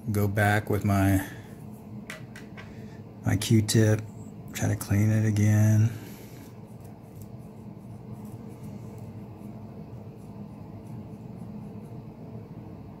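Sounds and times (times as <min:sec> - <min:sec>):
steady low hum: 0:00.0 - 0:13.0
cotton swab scratching: 0:06.5 - 0:12.1.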